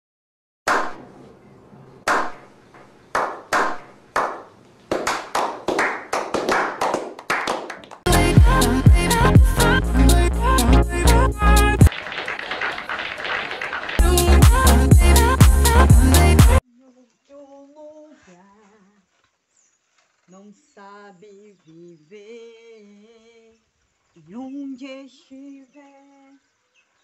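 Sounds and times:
group hand clapping: 0.7 - 1.0, 2.1 - 8.1, 11.8 - 16.6
audience applauding: 3.2 - 8.1, 11.8 - 15.6
dance music with thumping beat: 8.1 - 10.2, 14.0 - 16.6.

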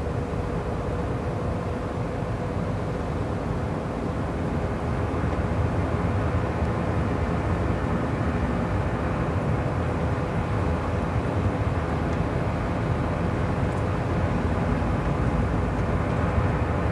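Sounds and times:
heavy trucks engine rumble: 0.0 - 16.9.

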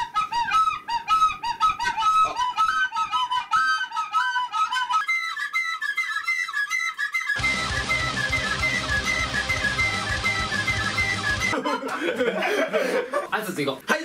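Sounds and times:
recorders playing short notes: 7.4 - 11.5.

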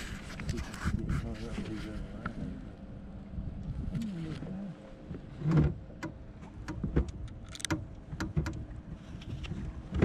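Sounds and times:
clicks and knocks on boat deck: 5.1 - 10.0.

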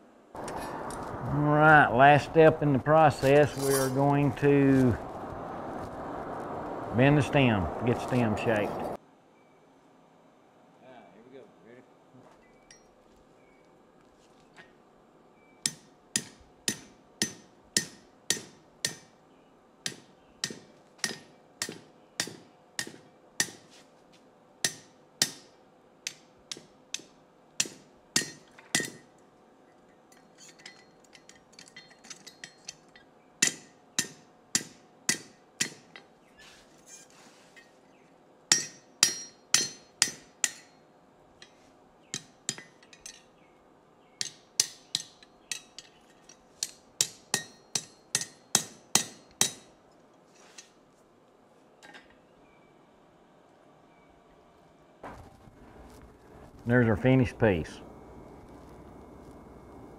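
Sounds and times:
hammer striking steel on anvil: 15.6 - 19.2, 19.8 - 23.7, 24.6 - 29.1, 30.4 - 36.1, 38.5 - 40.8, 41.4 - 43.3, 44.2 - 49.7.

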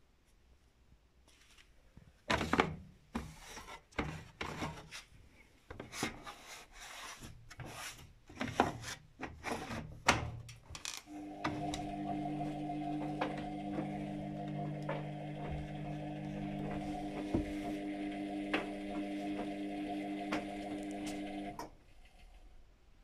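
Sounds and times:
washing machine humming: 11.1 - 21.7.

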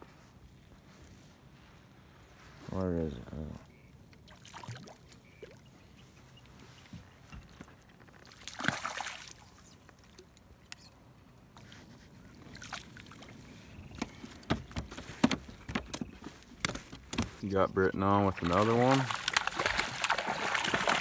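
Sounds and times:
faint water lapping: 3.4 - 16.6, 17.3 - 21.0
fish splashing at surface: 18.4 - 21.0.

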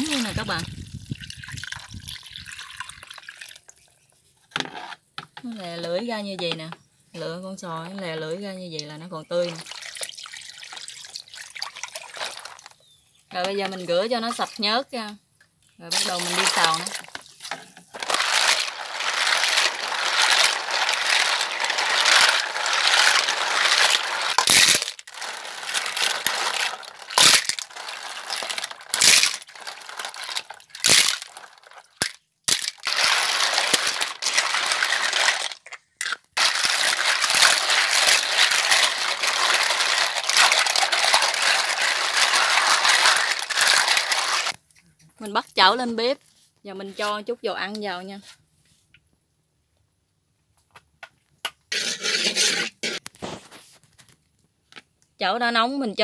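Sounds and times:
clam shells clattering: 9.6 - 12.8, 15.9 - 44.6.

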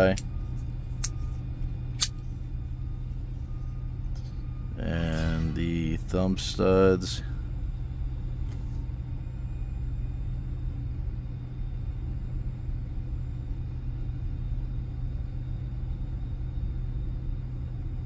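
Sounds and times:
car engine idling: 0.0 - 7.4.

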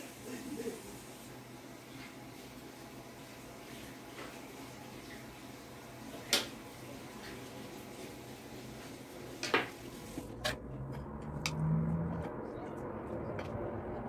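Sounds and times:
room hiss: 0.0 - 10.3.

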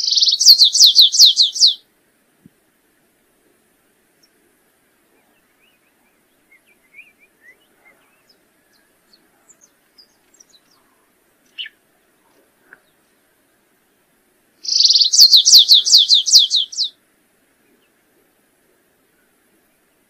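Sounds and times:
bird chirps and twittering: 0.0 - 1.8, 5.2 - 11.8, 14.6 - 16.9.

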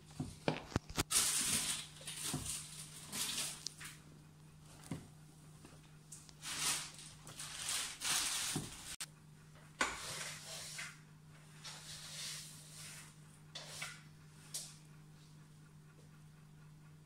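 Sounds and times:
faint steady hum: 0.0 - 17.0
animals rustling through hay: 1.0 - 3.7, 6.4 - 9.0.

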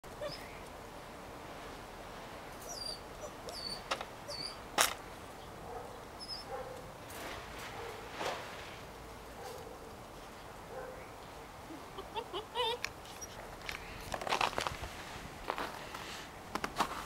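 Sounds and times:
puppies whimpering and yipping: 0.1 - 0.6, 2.6 - 4.6, 6.2 - 6.5, 11.7 - 13.4.

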